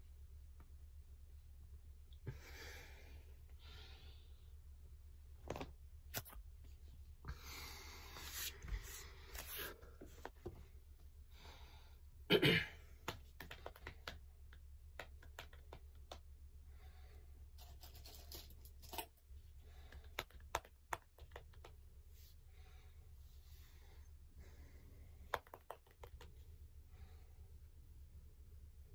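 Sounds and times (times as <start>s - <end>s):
person breathing: 2.2s - 4.6s, 7.2s - 10.2s, 11.2s - 12.2s, 16.6s - 17.5s, 22.2s - 25.3s, 26.7s - 27.7s.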